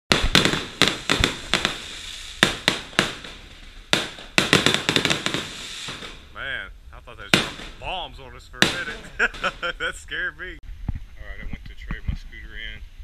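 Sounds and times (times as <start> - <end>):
fireworks bangs and crackling pops: 0.1 - 6.4, 7.2 - 10.2.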